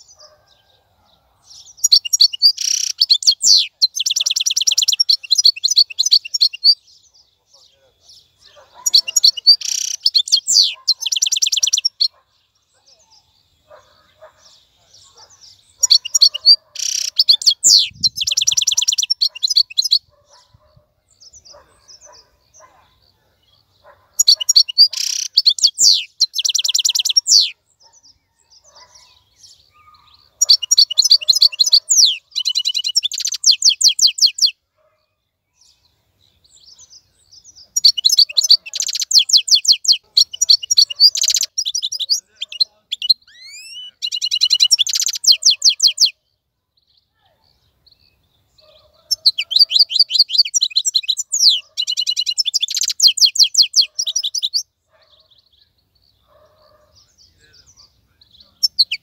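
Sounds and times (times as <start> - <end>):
goldfinch twittering and trilling: 1.5 - 6.8, 8.8 - 12.1, 14.9 - 20.1, 24.2 - 27.5, 37.7 - 46.1, 49.0 - 54.6.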